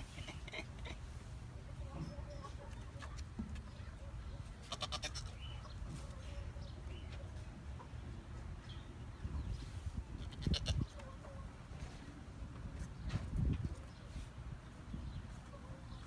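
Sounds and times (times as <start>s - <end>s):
goat bleating: 4.6s - 5.6s, 10.2s - 11.1s.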